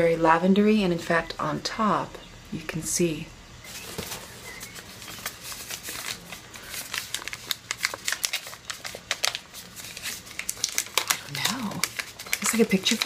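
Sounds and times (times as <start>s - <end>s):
paper rustling and crackling: 3.7s - 13.0s.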